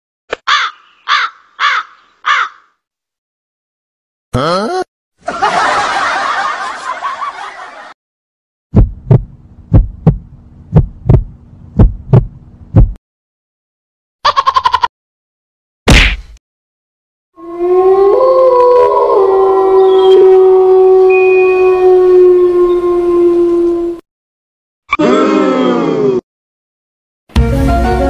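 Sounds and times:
crow cawing: 0.5s - 2.8s
heartbeat double thumps: 8.7s - 13.0s.

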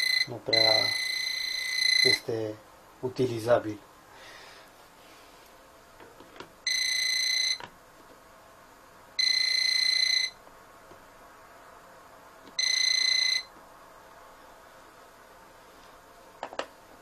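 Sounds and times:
voltage detector beeping: 0.0s - 2.3s, 6.7s - 7.6s, 9.2s - 10.4s, 12.6s - 13.5s.

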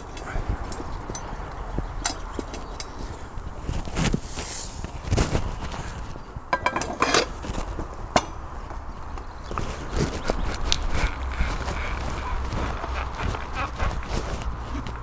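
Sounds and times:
metal lever clanking against tyre: 2.0s - 3.0s, 6.5s - 7.4s.

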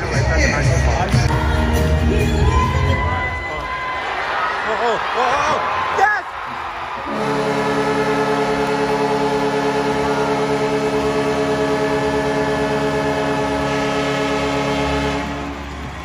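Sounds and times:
goal horn blast: 7.0s - 16.0s.

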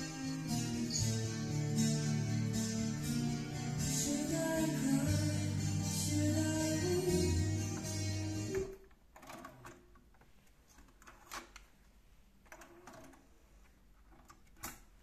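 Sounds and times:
music from cassette deck: 0.0s - 8.8s.

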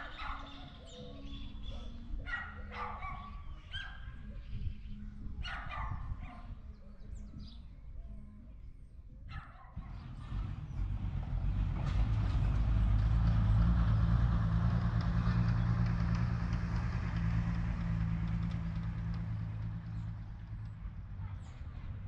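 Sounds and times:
vehicle engine passing slowly: 9.8s - 22.0s.

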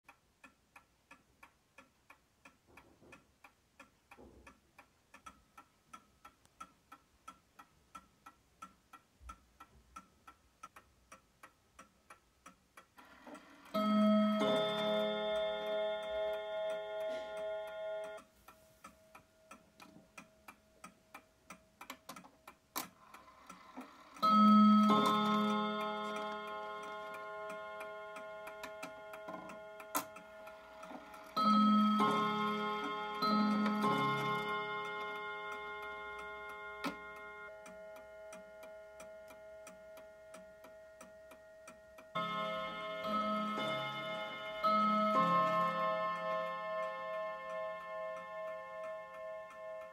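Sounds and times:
clock movement ticking: 0.1s - 49.9s
clock strike rods ringing: 13.7s - 18.2s, 24.0s - 39.7s, 42.1s - 49.9s.

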